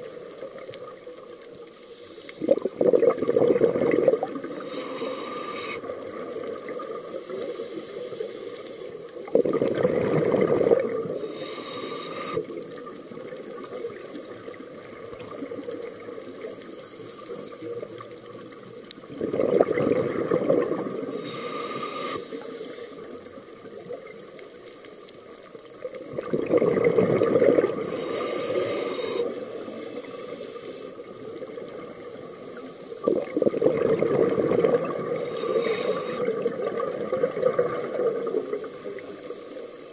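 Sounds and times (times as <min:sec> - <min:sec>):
regulator inhalation hiss: 0:01.7 - 0:02.6, 0:04.4 - 0:06.0, 0:06.9 - 0:09.3, 0:11.0 - 0:12.6, 0:16.2 - 0:18.0, 0:21.0 - 0:23.2, 0:27.7 - 0:31.2, 0:35.0 - 0:36.6, 0:38.3 - 0:39.9
exhaled bubbling rush: 0:02.4 - 0:07.6, 0:09.0 - 0:16.6, 0:17.6 - 0:22.3, 0:25.7 - 0:30.0, 0:30.9 - 0:39.3.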